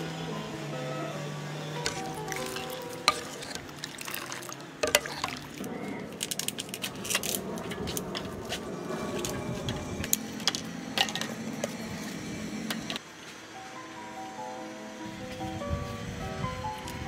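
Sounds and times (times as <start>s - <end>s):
liquid sloshing and splashing: 1.9s - 7.3s
plastic cups clicking: 1.9s - 7.4s.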